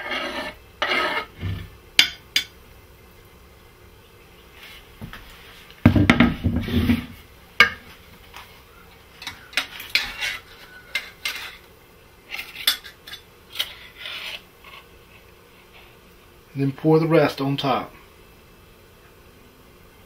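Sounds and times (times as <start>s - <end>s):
knife scraping a wooden board: 0.0s - 1.7s, 9.2s - 11.6s, 13.5s - 15.9s
metal spoon scraping a saucepan: 0.0s - 1.7s, 9.2s - 11.7s, 12.3s - 14.9s.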